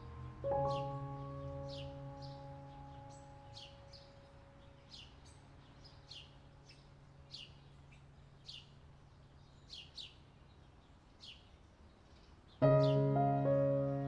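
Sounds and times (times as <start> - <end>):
background music: 0.0 - 4.9, 12.6 - 14.0
bird chirps: 0.0 - 14.0.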